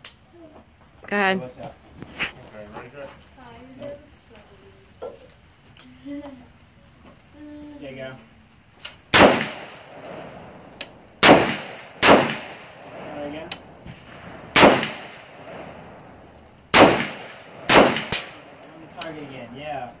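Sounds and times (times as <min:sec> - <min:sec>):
faint distant gunshots: 0:09.1 - 0:18.6
rifle shots echoing: 0:09.1 - 0:18.7.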